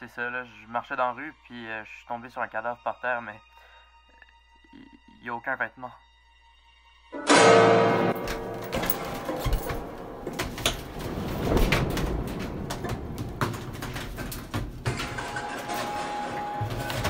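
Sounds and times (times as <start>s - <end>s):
plastic laundry basket rattling: 8.5s - 17.0s.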